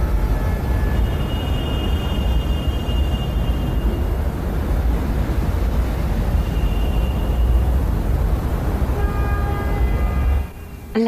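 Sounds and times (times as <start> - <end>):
distant traffic rumble: 0.0 - 11.0.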